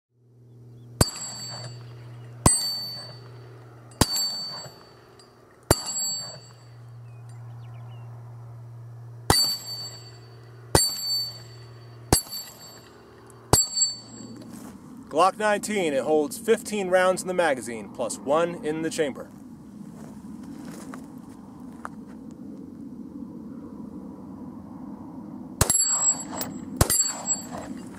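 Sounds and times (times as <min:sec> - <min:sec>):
steady low hum: 0:00.2 - 0:27.9
metallic ring of steel target: 0:00.9 - 0:07.7, 0:09.2 - 0:14.6, 0:25.6 - 0:27.9.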